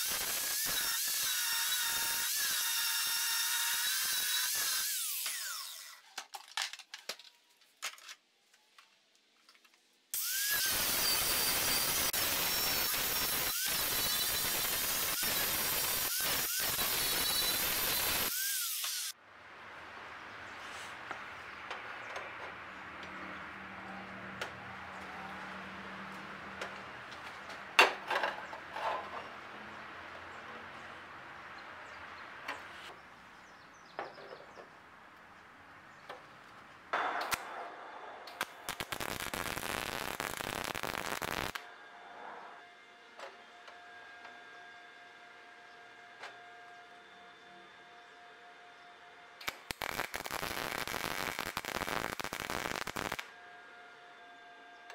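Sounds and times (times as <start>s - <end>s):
welder arc crackling: 0.0s - 2.6s, 10.2s - 19.2s, 38.3s - 41.6s, 49.4s - 53.3s
angle grinder cutting steel: 0.0s - 6.0s, 10.2s - 19.2s.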